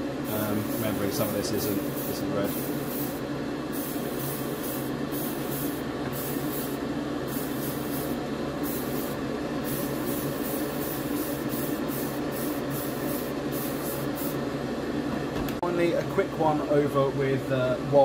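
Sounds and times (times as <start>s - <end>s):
steady low hum: 0.0s - 18.0s
airbrush spraying hiss: 0.3s - 14.4s.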